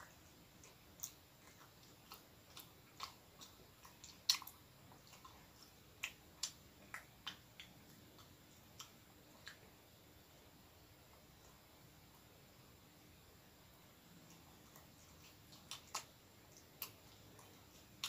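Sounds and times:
person chewing bread: 0.0s - 9.9s, 14.1s - 18.0s
wet mouth clicks: 0.6s - 9.6s.

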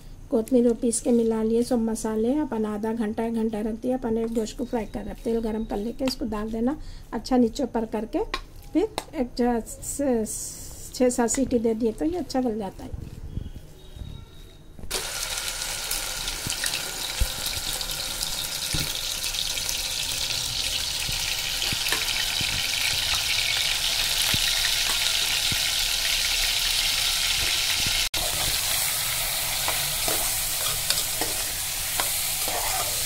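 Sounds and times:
meat sizzling in hot oil: 14.9s - 33.0s
spoon scraping and stirring: 28.2s - 33.0s.

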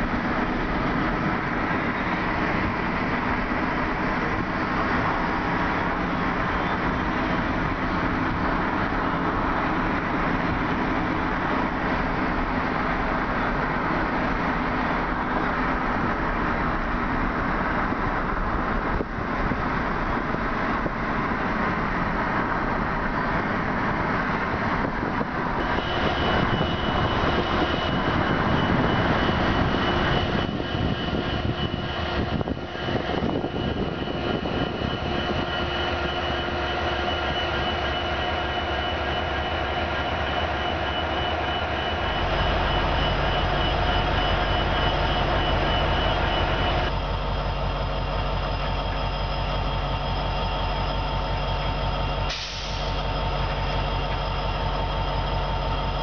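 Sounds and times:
diesel locomotives droning: 0.0s - 56.0s
high-pitched whine: 24.7s - 56.0s.

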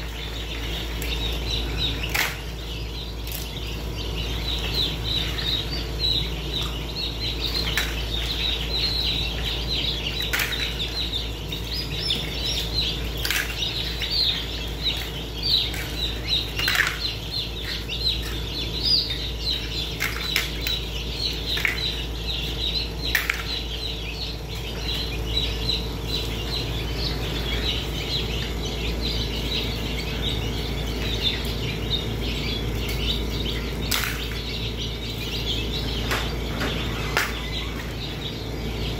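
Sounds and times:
chicks peeping: 0.0s - 38.9s
steady low hum: 0.0s - 38.9s.

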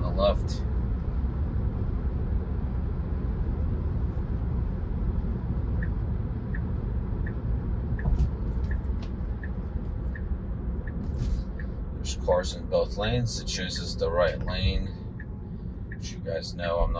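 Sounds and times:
road and tyre rumble in car: 0.0s - 16.9s
turn signal ticking: 5.5s - 16.9s.

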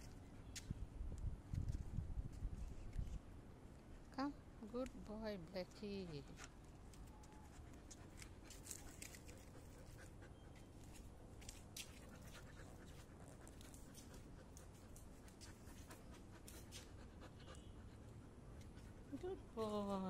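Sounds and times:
dog panting: 5.7s - 6.5s, 7.5s - 11.0s, 11.8s - 19.6s.

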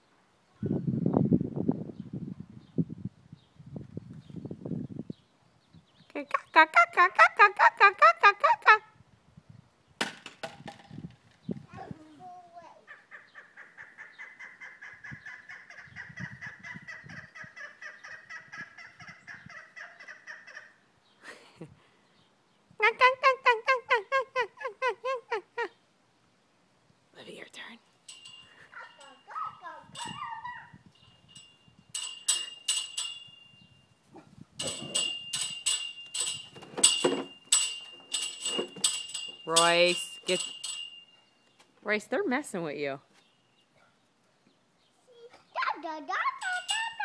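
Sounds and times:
bird rattling call: 46.4s - 47.0s.

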